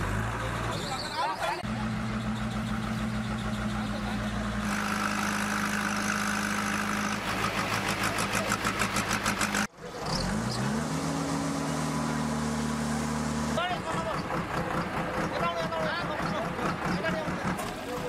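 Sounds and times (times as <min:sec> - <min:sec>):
diesel engine running: 0:00.0 - 0:18.0
engine revving: 0:01.6 - 0:17.6.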